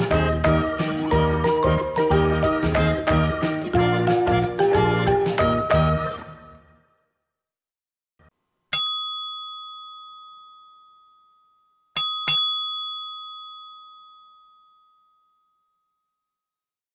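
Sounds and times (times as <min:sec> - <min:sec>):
small bell dinging: 0:08.8 - 0:16.2.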